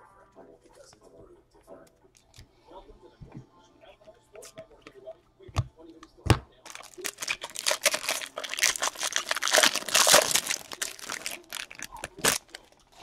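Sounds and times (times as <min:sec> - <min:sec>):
wrapper crinkling and tearing: 0:06.7 - 0:12.8.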